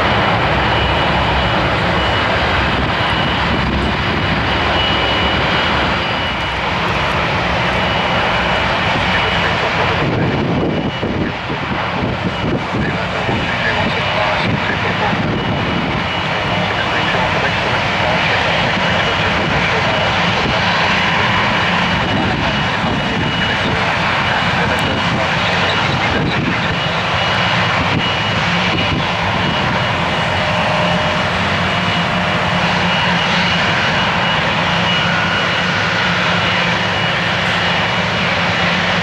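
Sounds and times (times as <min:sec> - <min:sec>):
jet airliner taxiing: 0:00.0 - 0:39.0
turboprop aircraft climbing: 0:00.0 - 0:39.0.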